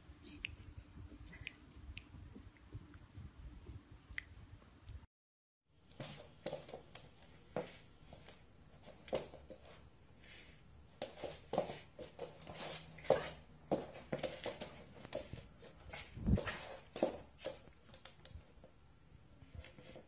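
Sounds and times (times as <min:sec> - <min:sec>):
puppy paws clicking: 0:05.9 - 0:09.9, 0:10.9 - 0:18.7.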